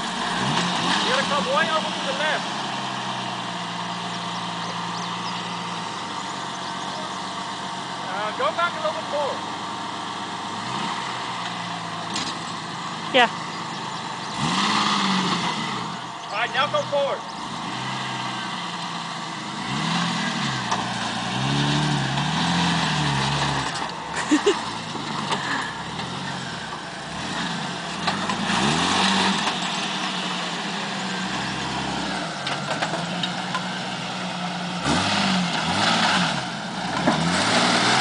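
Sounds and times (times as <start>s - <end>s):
engine revving: 0.0s - 38.0s.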